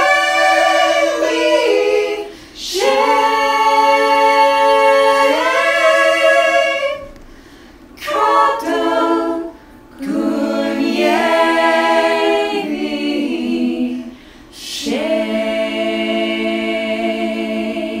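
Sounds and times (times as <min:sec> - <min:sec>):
group singing a cappella: 0:00.0 - 0:07.2, 0:08.0 - 0:18.0
singers breathing: 0:02.2 - 0:02.6, 0:07.2 - 0:07.9, 0:14.1 - 0:14.6.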